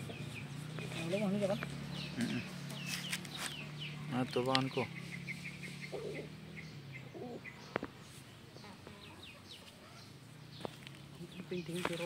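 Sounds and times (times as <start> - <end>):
low bird calls: 0.0 - 12.0
small birds chirping: 0.0 - 12.0.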